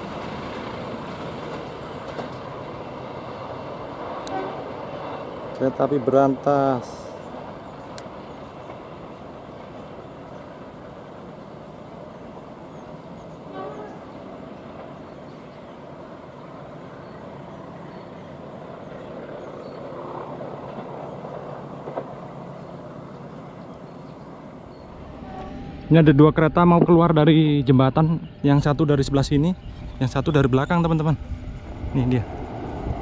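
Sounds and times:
outdoor traffic noise: 0:00.0 - 0:33.0
brief faint tone: 0:24.7 - 0:27.0.

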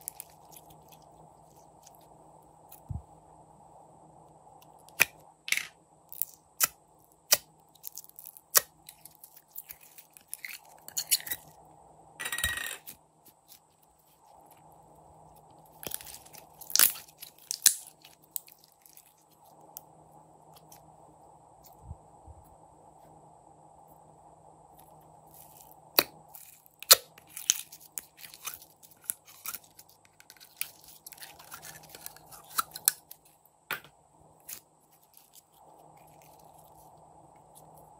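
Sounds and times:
slime squelching: 0:26.2 - 0:33.3.

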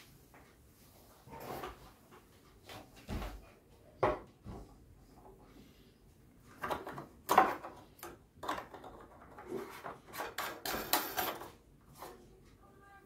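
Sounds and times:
lamp parts clicking and scraping: 0:07.4 - 0:11.6.

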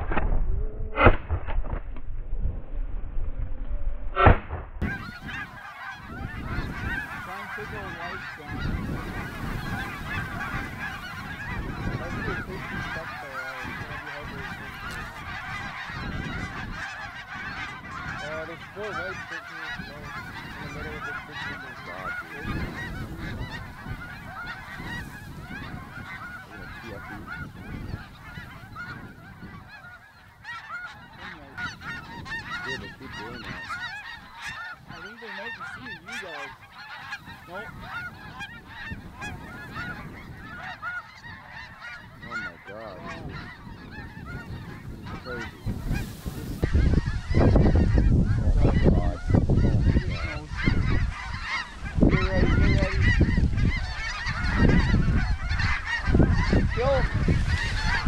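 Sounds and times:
low rumble: 0:00.0 - 0:05.0
snow geese honking: 0:04.2 - 0:58.0.

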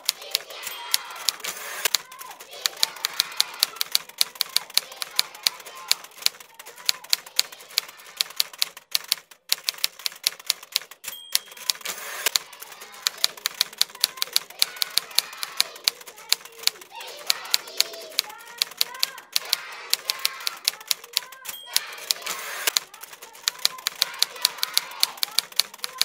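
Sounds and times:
typewriter keys clacking: 0:00.0 - 0:26.0
typewriter bell ding: 0:00.3 - 0:02.3, 0:10.3 - 0:14.9, 0:20.1 - 0:26.0.

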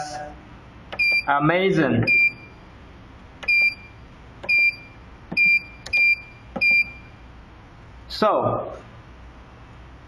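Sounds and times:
high-pitched key beeps: 0:00.9 - 0:01.4, 0:02.0 - 0:02.6, 0:03.4 - 0:07.2.

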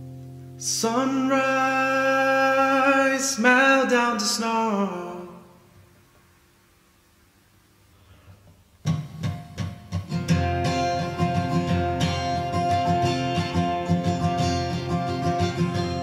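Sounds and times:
acoustic guitar strumming: 0:00.0 - 0:05.5, 0:08.8 - 0:16.0.

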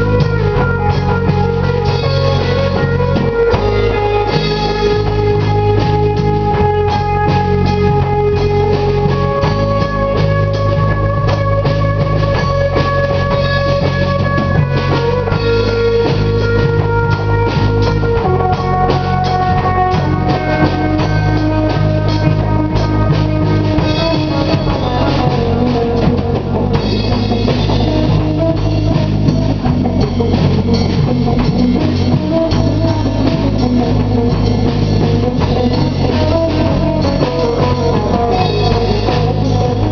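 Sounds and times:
bass guitar: 0:00.0 - 0:39.9
electric guitar sustained notes: 0:00.0 - 0:39.9
pounding drum kit: 0:00.0 - 0:39.9.

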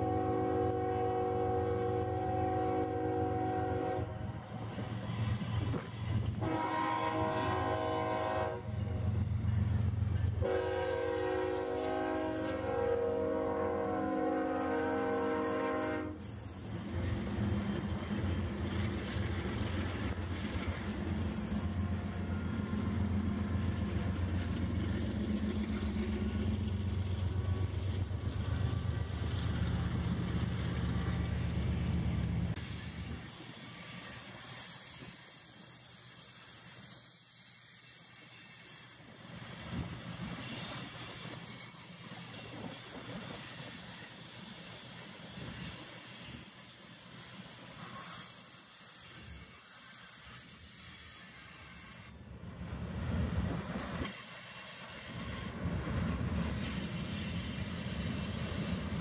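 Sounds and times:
train horn blast: 0:00.0 - 0:04.3, 0:06.3 - 0:09.2, 0:10.4 - 0:16.3
diesel locomotives rumbling: 0:00.0 - 0:35.6, 0:48.8 - 0:59.0
train wheel squeal: 0:02.0 - 0:52.3, 0:53.1 - 0:59.0.

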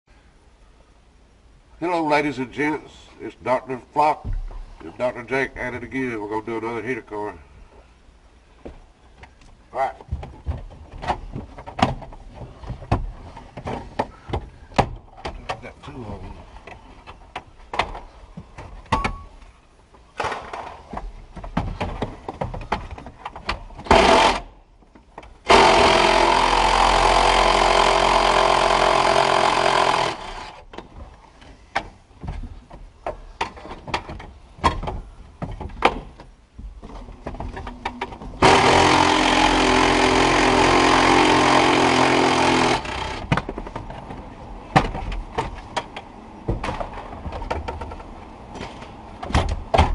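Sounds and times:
power tool running: 0:23.9 - 0:24.5, 0:25.5 - 0:30.6, 0:38.4 - 0:43.3.

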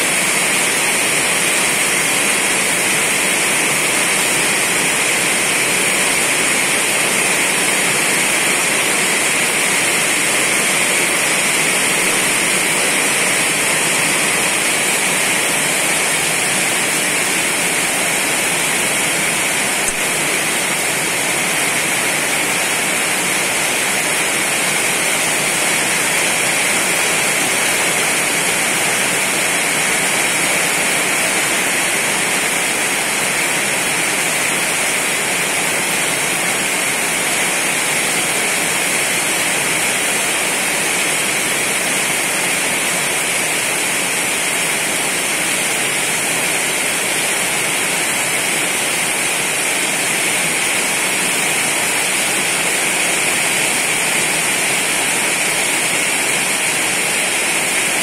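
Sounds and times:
heavy rain falling on trees: 0:00.0 - 0:58.0.

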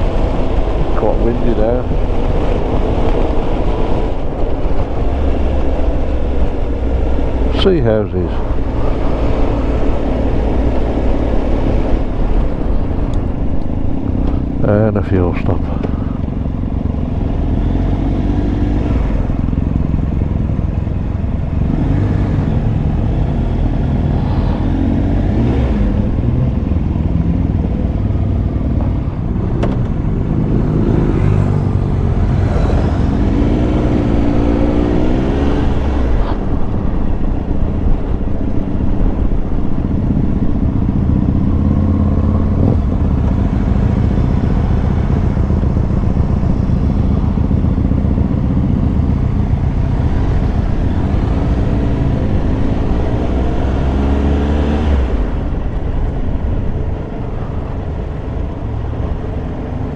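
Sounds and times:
heavy wind noise: 0:00.0 - 0:59.9
motorcycle engine running: 0:36.4 - 0:53.1.

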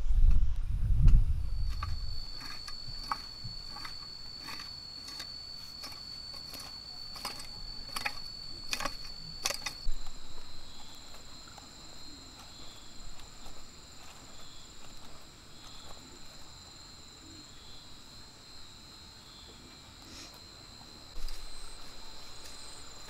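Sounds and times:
high insect trill: 0:01.2 - 0:23.0
garden cultivator scraping soil: 0:01.6 - 0:16.8.

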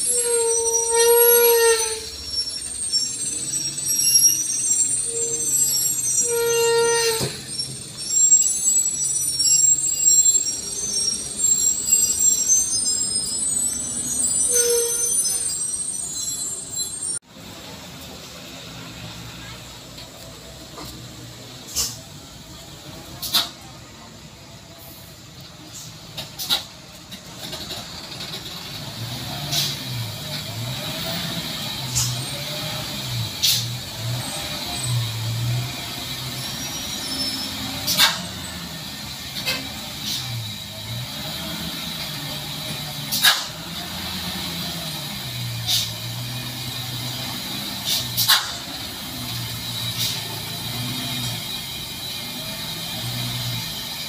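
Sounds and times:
louder lower squeal tone: 0:00.0 - 0:17.2, 0:29.2 - 0:54.0
truck brake squeal: 0:00.0 - 0:17.2, 0:19.0 - 0:24.1, 0:24.8 - 0:54.0
air brake hisses: 0:33.0 - 0:33.8, 0:36.2 - 0:40.9, 0:42.5 - 0:44.6, 0:45.3 - 0:52.3.

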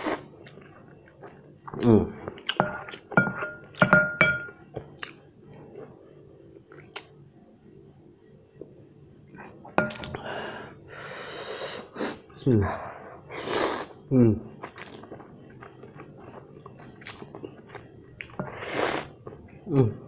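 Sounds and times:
wooden spoon knocking glass bowl: 0:02.6 - 0:04.5.

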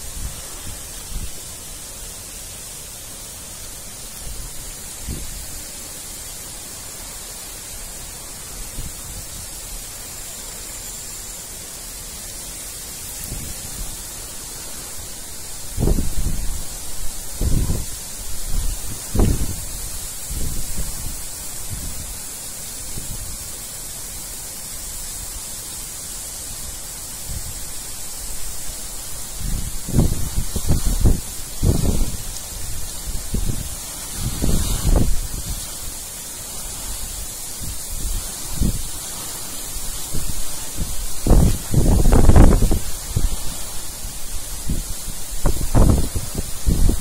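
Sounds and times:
heavy rain falling on paving: 0:00.0 - 0:47.0
wind buffeting microphone: 0:03.7 - 0:07.2, 0:13.2 - 0:23.6, 0:28.5 - 0:47.0.

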